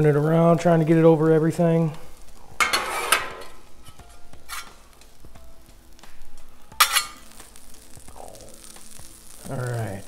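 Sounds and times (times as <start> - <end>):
faint frying: 0.0 - 10.0
metal spatulas scraping on griddle: 2.6 - 4.9, 6.8 - 7.3.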